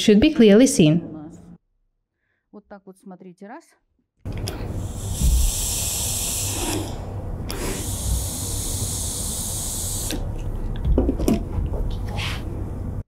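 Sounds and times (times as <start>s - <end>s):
steam iron hissing: 4.8s - 10.3s.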